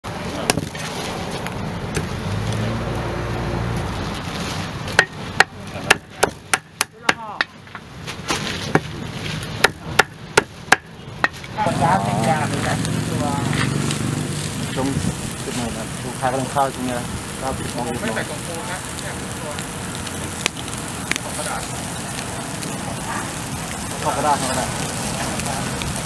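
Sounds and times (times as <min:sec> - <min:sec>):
steady background noise: 0:00.0 - 0:26.0
cleaver chopping on wooden block: 0:05.0 - 0:07.6, 0:08.7 - 0:08.9, 0:09.6 - 0:11.5.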